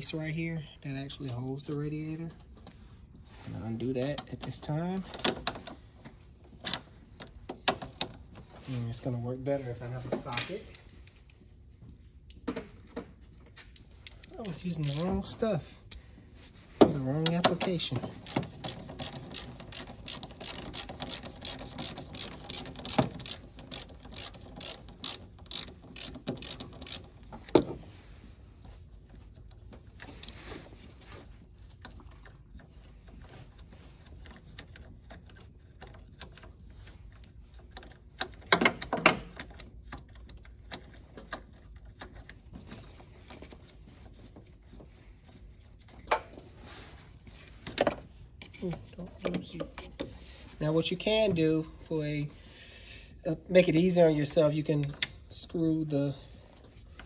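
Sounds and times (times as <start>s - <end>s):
ratchet wrench clicking: 18.2s - 27.2s.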